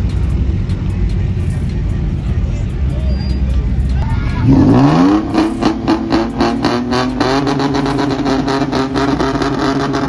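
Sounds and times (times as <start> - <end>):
pickup engine at high revs: 4.4 - 10.0.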